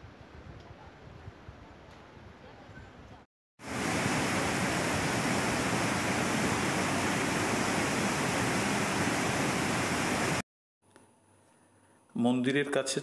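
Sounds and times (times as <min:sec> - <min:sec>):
stream rushing over boulders: 0:03.6 - 0:10.4.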